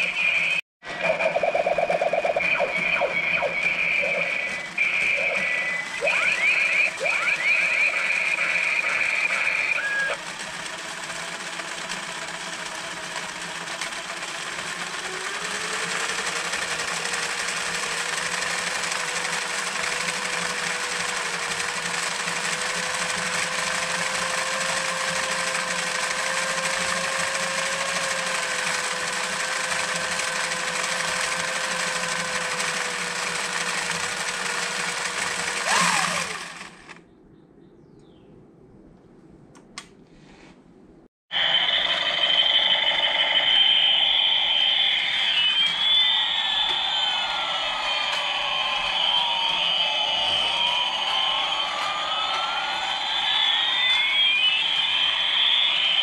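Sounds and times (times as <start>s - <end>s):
high warbling tone: 0.0s - 10.2s, 41.3s - 56.0s
toy motor buzzing whine with gear rattle: 0.0s - 37.0s, 41.3s - 56.0s.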